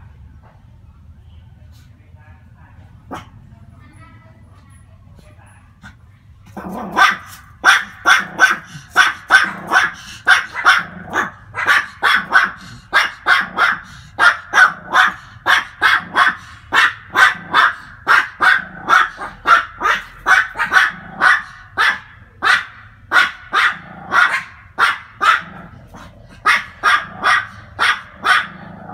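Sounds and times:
small dogs barking: 3.0s - 3.4s, 6.4s - 28.9s.

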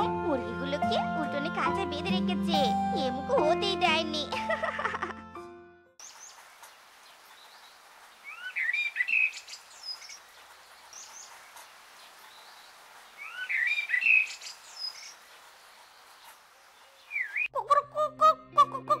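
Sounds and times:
soft steady hiss: 6.0s - 17.1s
small birds chirping and singing: 6.0s - 17.6s.

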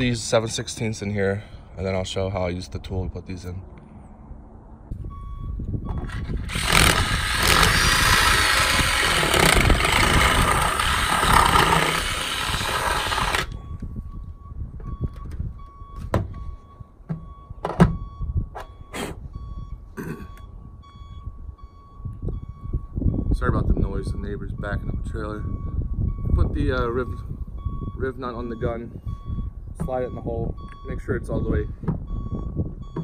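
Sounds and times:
reversing alarm beeping: 4.9s - 11.1s, 12.0s - 33.0s
cordless drill boring metal: 6.0s - 13.6s.

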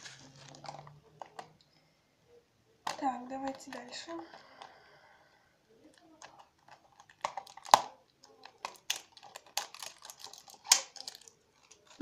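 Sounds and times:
plastic wrapper crackling: 0.0s - 1.5s, 5.9s - 12.0s
wrapper snapping: 5.9s - 12.0s.

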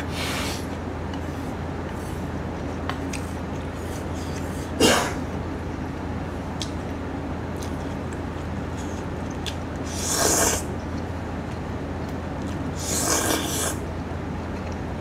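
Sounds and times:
steady low hum: 0.0s - 15.0s
man eating noodles: 8.8s - 10.7s, 12.7s - 13.9s.

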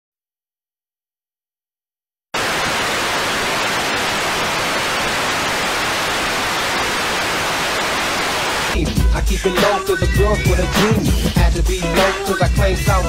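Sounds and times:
television static hiss: 2.4s - 8.8s.

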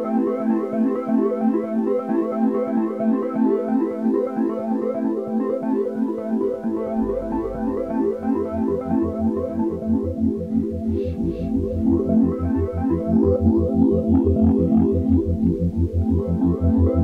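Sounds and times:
pulsing bass line: 6.5s - 17.0s.

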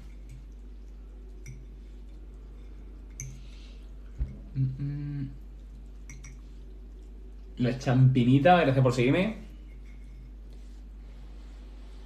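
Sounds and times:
quiet eating sounds: 0.0s - 8.2s, 9.4s - 12.0s
low electrical hum: 0.0s - 12.0s
person humming briefly: 4.5s - 5.4s.

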